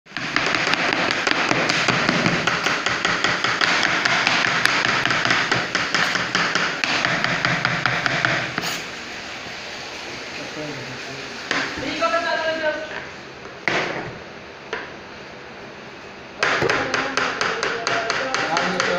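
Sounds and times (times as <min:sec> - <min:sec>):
knife chopping on plastic board: 0:00.1 - 0:08.7, 0:16.4 - 0:18.9.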